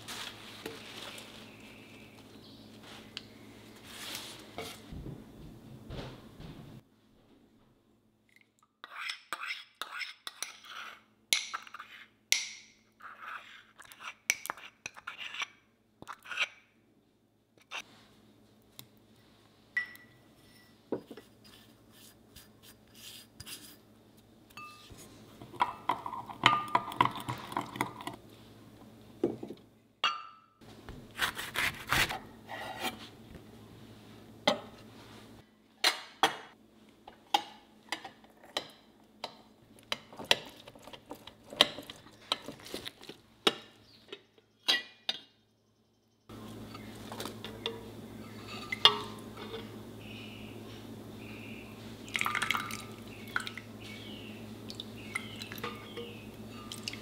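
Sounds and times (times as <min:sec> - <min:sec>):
spoon clinking in glass mug: 0:19.8 - 0:20.7.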